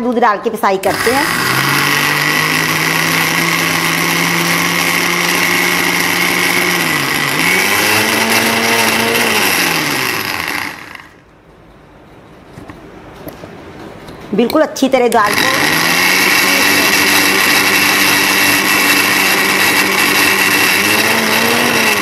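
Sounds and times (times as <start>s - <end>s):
mixer grinder motor whine: 0.8s - 11.2s, 15.2s - 22.0s.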